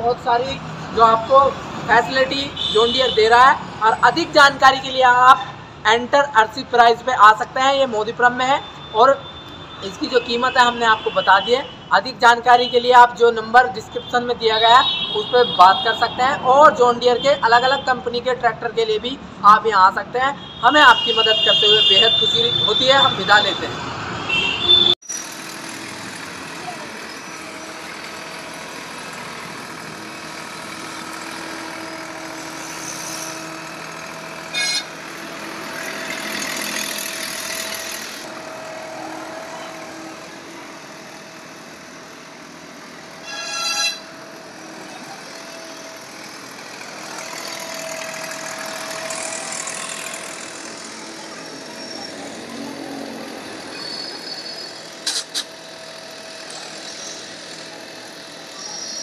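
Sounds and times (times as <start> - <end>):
diesel engine running: 25.2 - 43.2, 44.0 - 59.0.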